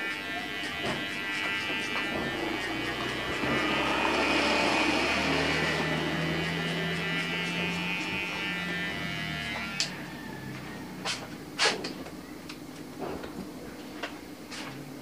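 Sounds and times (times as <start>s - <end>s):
electric hair clipper buzzing: 0.0s - 10.8s.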